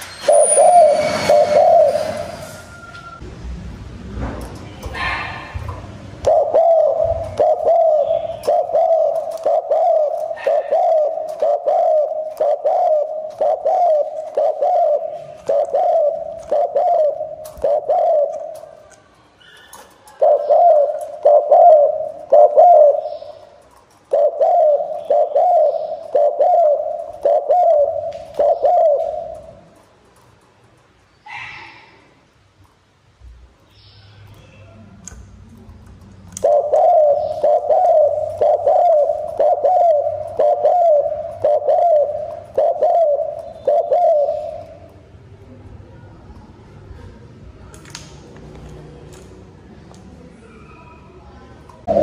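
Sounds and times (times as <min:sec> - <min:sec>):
dove cooing: 0:00.2 - 0:02.4, 0:06.2 - 0:18.8, 0:19.7 - 0:29.8, 0:36.4 - 0:44.9.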